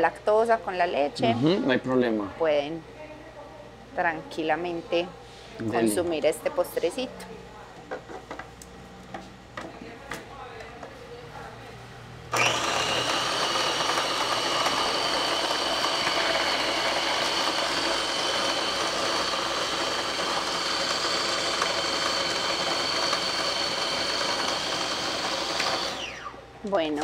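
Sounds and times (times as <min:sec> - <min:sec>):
food processor motor whining: 0:12.3 - 0:26.4.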